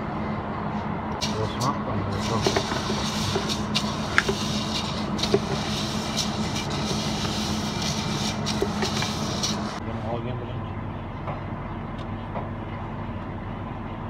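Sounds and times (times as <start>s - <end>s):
steady low hum: 0.0s - 14.0s
spatula stirring noodles in pot: 2.2s - 9.8s.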